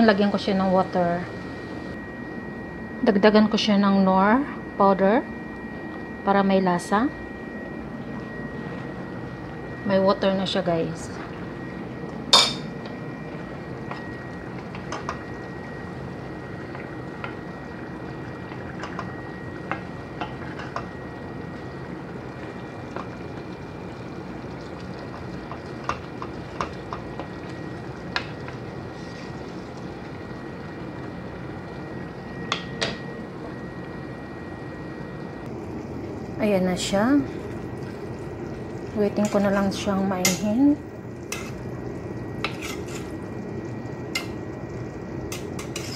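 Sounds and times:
pot bubbling on burner: 5.6s - 45.9s
utensils clinking against pot: 12.3s - 12.7s, 40.2s - 40.5s, 42.4s - 43.2s, 45.3s - 45.9s.

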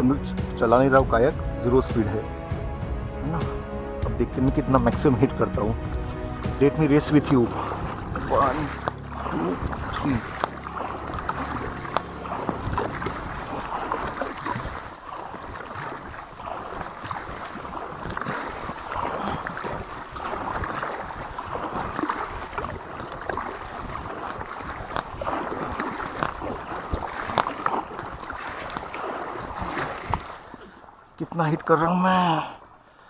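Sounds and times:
paddle strokes splashing water: 0.0s - 33.0s.

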